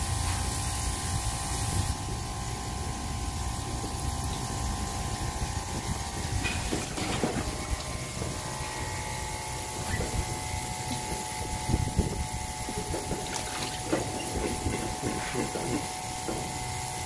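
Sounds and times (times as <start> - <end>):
steady machine hum: 0.0 - 17.0
water running from shower hose: 0.1 - 17.0
soft knocks and splashes: 6.4 - 9.0, 9.7 - 16.5.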